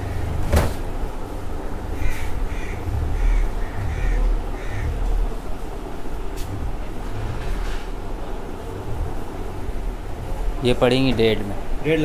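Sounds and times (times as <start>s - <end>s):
low background rumble: 0.0s - 12.0s
crow cawing: 2.0s - 5.2s.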